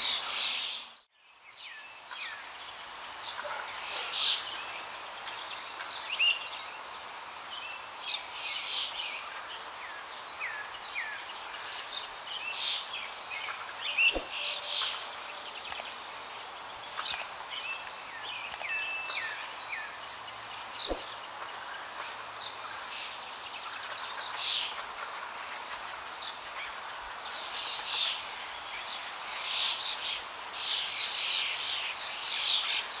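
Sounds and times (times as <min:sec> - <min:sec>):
steady outdoor hiss: 0:00.0 - 0:33.0
birds chirping and calling: 0:08.2 - 0:33.0.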